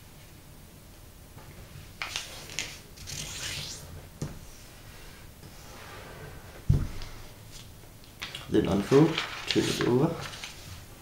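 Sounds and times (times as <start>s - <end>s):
paper rustling and crackling: 8.2s - 10.9s.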